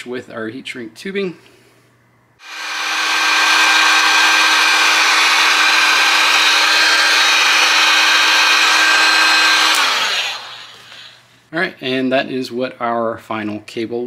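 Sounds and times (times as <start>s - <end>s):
fan motor hum: 2.4s - 11.3s
heat gun blowing air: 2.4s - 11.3s.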